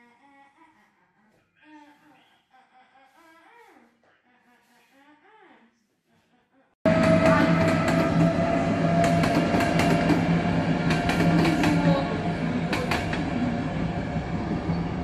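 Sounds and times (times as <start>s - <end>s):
wheels clicking over rail joints: 6.9s - 13.4s
train passing low hum: 6.9s - 15.0s.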